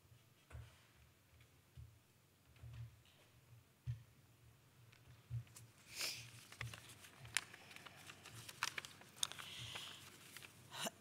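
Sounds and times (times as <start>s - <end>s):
papers rustling at microphone: 4.9s - 10.8s.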